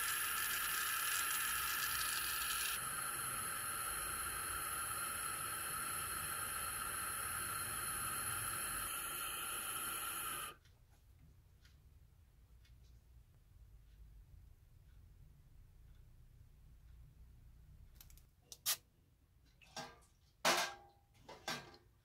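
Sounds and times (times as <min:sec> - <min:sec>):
gas torch hissing: 0:00.0 - 0:10.6.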